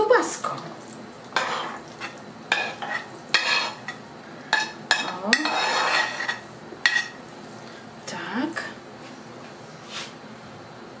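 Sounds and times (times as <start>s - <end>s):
spoon scraping frying pan: 1.3s - 7.2s.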